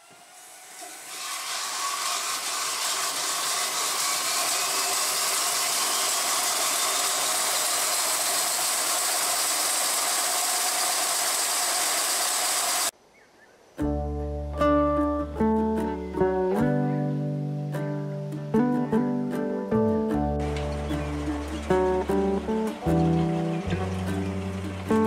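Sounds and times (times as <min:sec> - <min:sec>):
bandsaw starting up and running: 0:00.0 - 0:12.9, 0:20.4 - 0:25.0.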